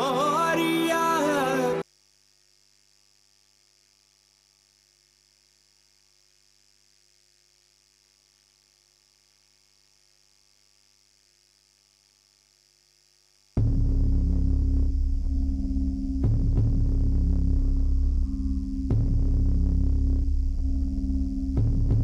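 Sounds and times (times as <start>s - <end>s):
music with singing voice: 0.0s - 1.8s
faint hum and hiss: 0.0s - 22.0s.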